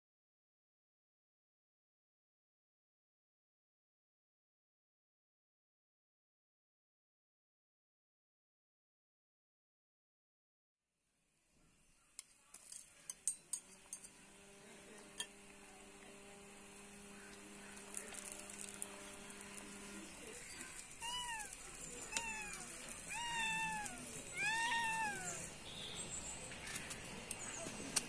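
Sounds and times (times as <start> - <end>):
cat meowing: 20.6 - 25.5.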